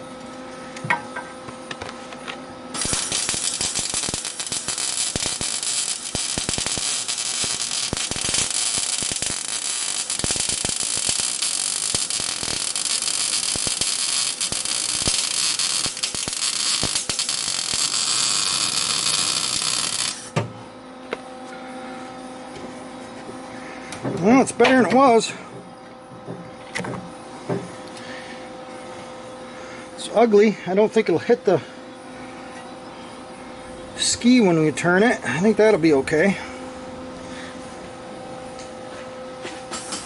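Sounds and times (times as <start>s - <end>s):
faint welder hum: 0.0s - 40.0s
welding arc crackling and sizzling: 2.7s - 20.4s.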